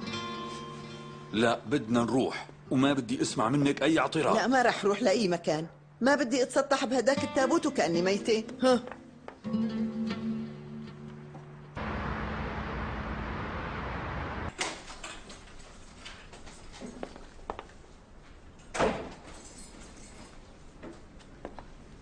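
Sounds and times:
steady rushing noise: 11.8s - 14.5s.

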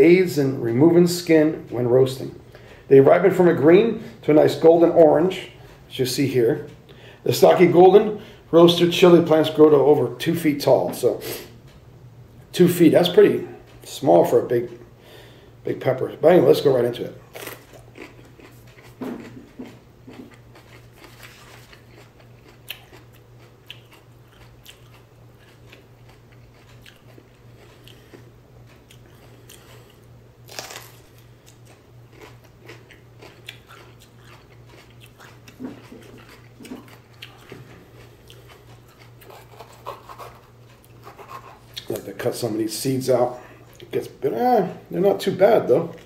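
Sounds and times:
person chewing crunchy pepper: 16.6s - 42.2s.

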